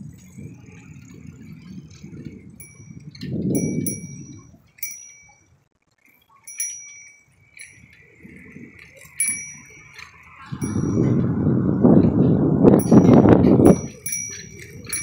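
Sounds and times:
wind and road noise: 0.0 - 15.0
bicycle bell ringing: 2.2 - 5.6, 6.3 - 11.3, 12.8 - 15.0.

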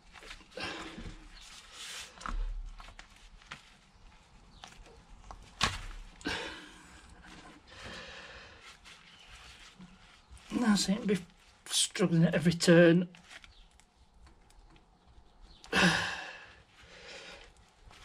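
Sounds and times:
rubber and glove rubbing: 0.0 - 6.2, 6.8 - 11.9, 16.6 - 18.0.

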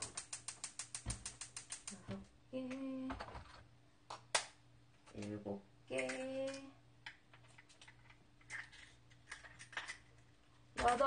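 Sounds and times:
gas stove igniter clicking: 0.0 - 2.0.

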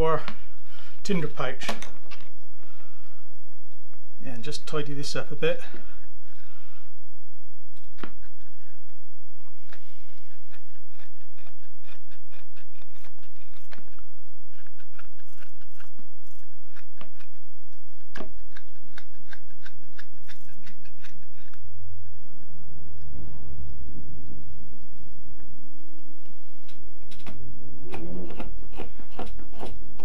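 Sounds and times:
knife scraping wood: 9.7 - 17.4, 27.9 - 30.0.

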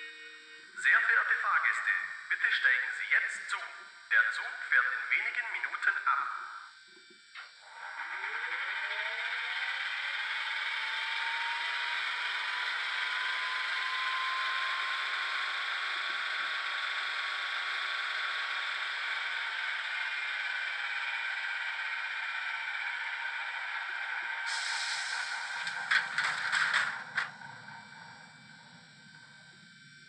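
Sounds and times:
electric whine from small speaker: 0.0 - 30.0
rattling hum: 19.0 - 30.0.

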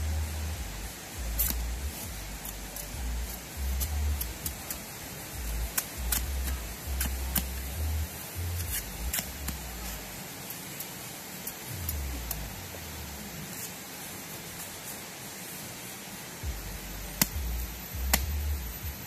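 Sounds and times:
background music bass line: 0.0 - 10.2, 11.7 - 13.3, 16.4 - 19.0
knife cutting bamboo: 1.4 - 5.0, 5.6 - 7.8, 8.4 - 10.6.

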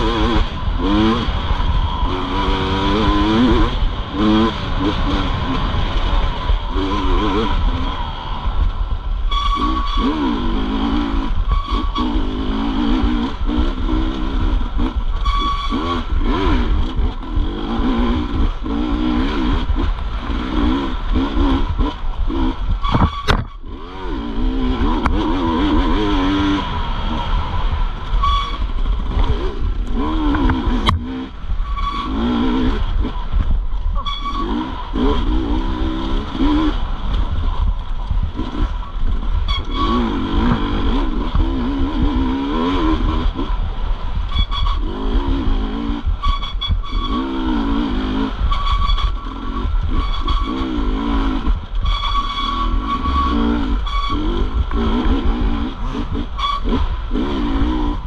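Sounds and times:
motorcycle engine revving: 0.0 - 58.0.

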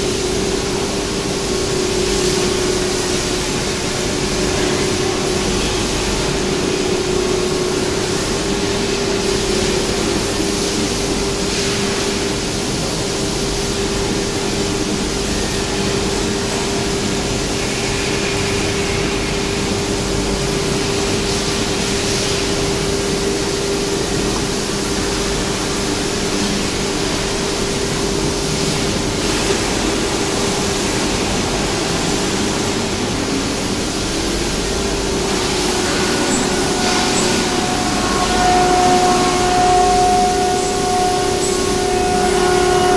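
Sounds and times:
machine and dust extraction rush: 31.8 - 42.8
router spindle whining: 34.9 - 42.9.

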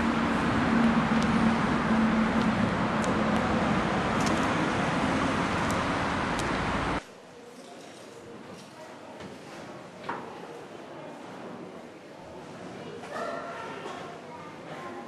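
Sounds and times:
passing cars: 0.0 - 7.0
vehicle hum: 0.0 - 7.0.

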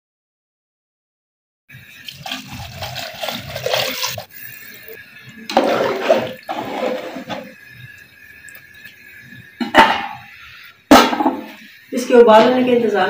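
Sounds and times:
water pouring into a pot: 1.7 - 13.0
ladle sloshing liquid in a pot: 5.5 - 7.6.

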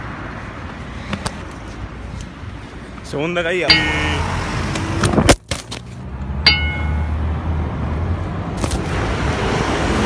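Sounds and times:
road traffic rumble: 0.0 - 10.0
ringing metallic clink: 3.7 - 4.2, 6.4 - 7.2.

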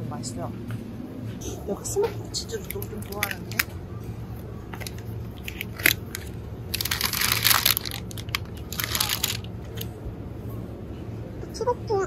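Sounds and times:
low background hum: 0.0 - 12.0
crinkling handling noise: 2.5 - 10.0
rustling: 4.8 - 9.8.

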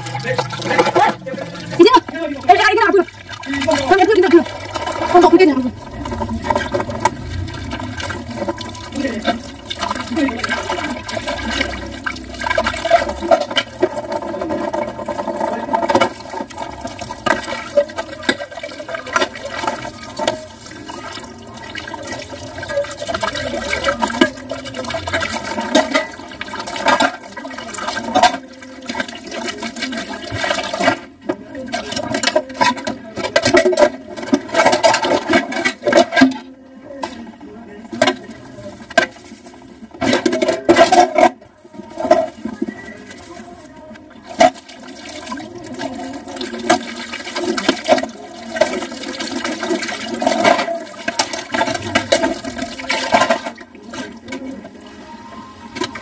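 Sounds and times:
tap water running into sink: 0.0 - 31.1
dishes clinking and clattering: 0.0 - 37.2, 39.9 - 43.2, 44.2 - 54.6
dishes being scrubbed: 0.0 - 37.3, 37.9 - 55.0.

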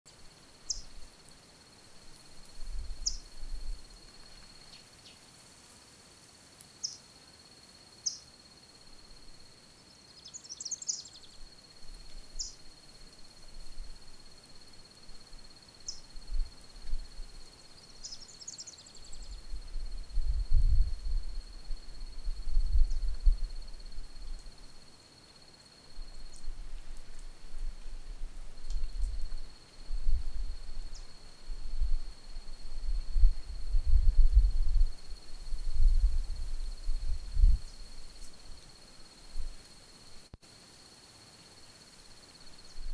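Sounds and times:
wind rumble on microphone: 2.4 - 4.1, 16.0 - 17.4, 19.1 - 24.7, 26.0 - 38.6, 42.6 - 42.9.

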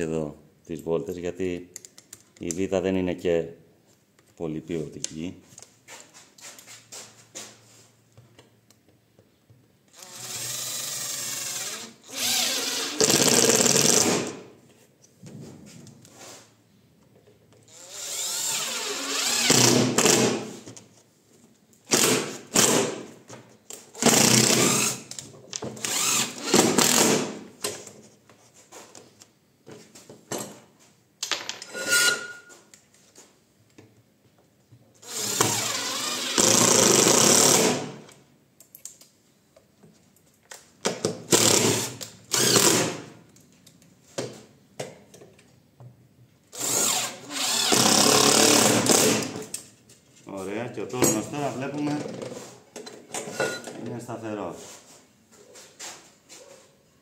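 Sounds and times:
cordless drill driving screws: 9.9 - 14.4, 17.7 - 20.3, 24.0 - 25.1, 25.8 - 27.3, 35.0 - 37.8, 41.3 - 42.9, 46.6 - 49.4.

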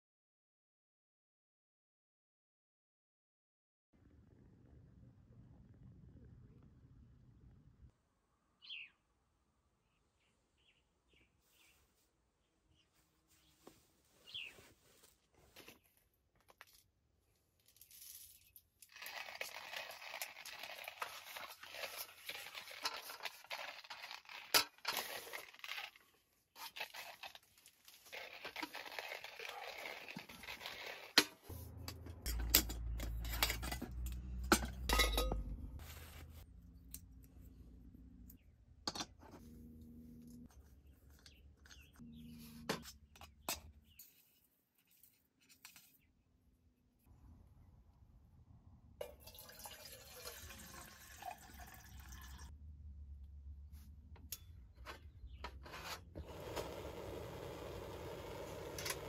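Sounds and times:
hand coffee grinder grinding: 17.8 - 31.6, 56.2 - 59.0.

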